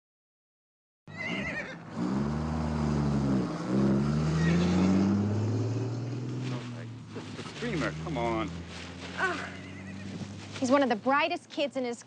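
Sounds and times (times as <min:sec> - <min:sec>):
pony whinnying: 0:01.1 - 0:01.8, 0:04.2 - 0:05.1, 0:09.2 - 0:10.5
truck engine running: 0:01.8 - 0:11.6.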